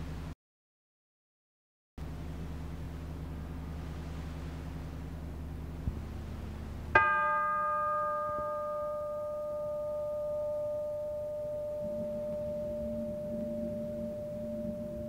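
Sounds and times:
low hum: 0:02.0 - 0:15.0
low sustained tone: 0:02.0 - 0:15.0
bell-like metal note ringing: 0:07.0 - 0:15.0.

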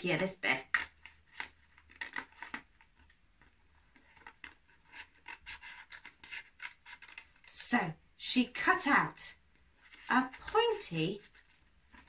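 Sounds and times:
paper crinkling: 0:00.6 - 0:07.5, 0:09.8 - 0:12.0
scissors snipping paper: 0:04.1 - 0:07.5.

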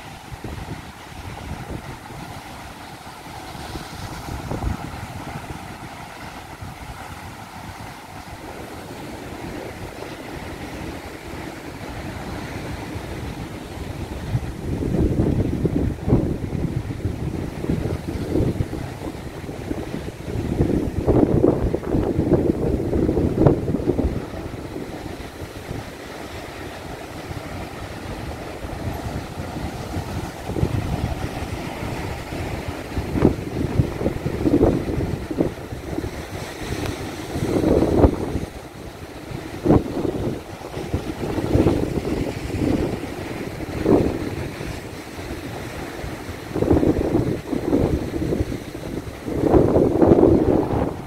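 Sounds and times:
sea surf breaking: 0:00.0 - 0:51.0
wind: 0:00.0 - 0:51.0.

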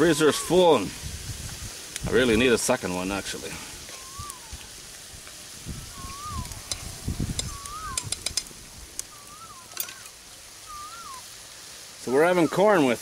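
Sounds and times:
bird whistling: 0:03.9 - 0:04.6, 0:05.8 - 0:06.7, 0:07.4 - 0:08.3, 0:09.0 - 0:11.3.

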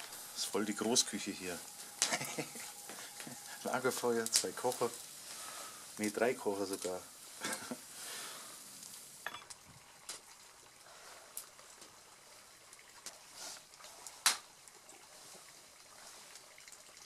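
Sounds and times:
food sizzling in a frying pan: 0:00.0 - 0:11.1.

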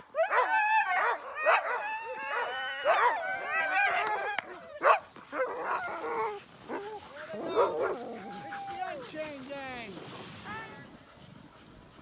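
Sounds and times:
sled dogs yelping and howling: 0:00.0 - 0:12.0
dog barking loudly: 0:00.2 - 0:03.2, 0:04.8 - 0:05.9, 0:07.4 - 0:08.0.

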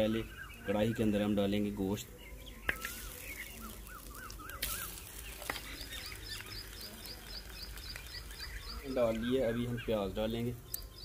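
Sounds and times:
bird warbling: 0:02.5 - 0:10.0
fast high bird chirps: 0:02.6 - 0:10.0.

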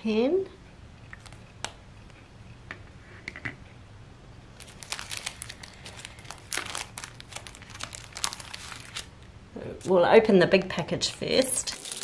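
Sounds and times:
plastic packaging crinkling: 0:04.6 - 0:09.2, 0:11.6 - 0:12.0.

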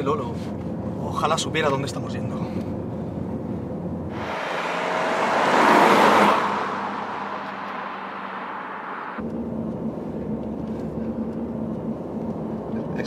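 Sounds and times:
car driving past: 0:04.1 - 0:09.2.

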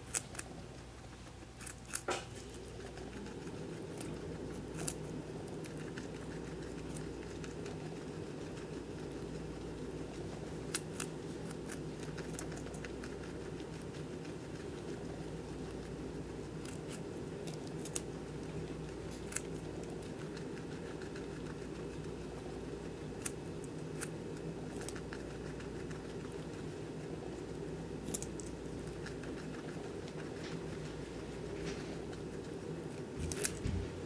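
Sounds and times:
guinea pig crunching carrot: 0:00.0 - 0:34.0
low background hum: 0:00.0 - 0:34.0.

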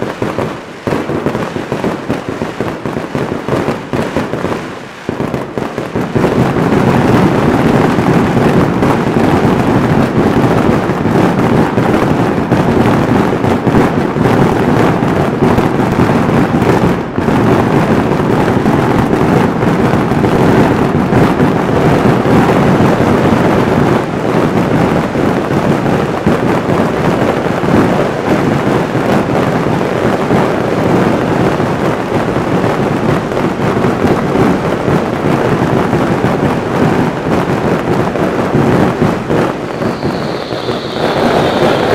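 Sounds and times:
fireworks barrage rumble: 0:00.0 - 0:41.9.

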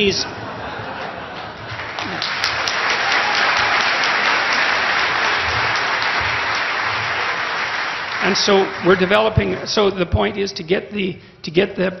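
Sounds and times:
audience applauding: 0:01.0 - 0:09.9.

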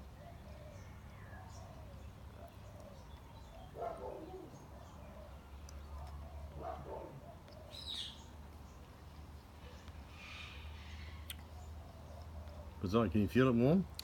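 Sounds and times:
birds cooing: 0:00.0 - 0:08.4, 0:09.4 - 0:13.8.

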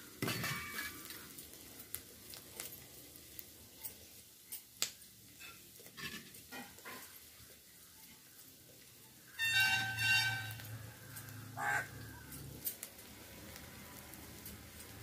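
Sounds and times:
crow cawing: 0:10.8 - 0:12.4.

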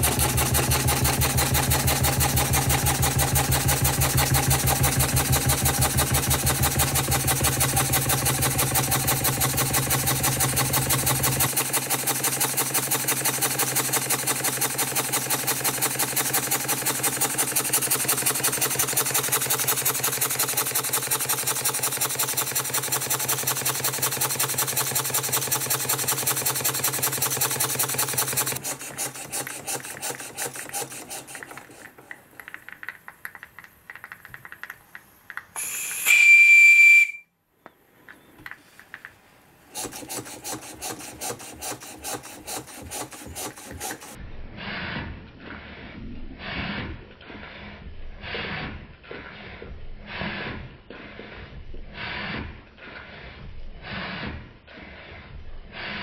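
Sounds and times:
steam engine exhaust chuffs: 0:00.0 - 0:31.9
loud high steam whistle: 0:35.6 - 0:37.3.

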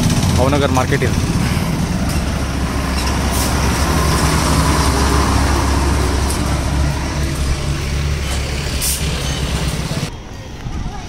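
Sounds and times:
motorcycle engine running: 0:00.0 - 0:03.1
road and traffic noise: 0:00.0 - 0:11.0.

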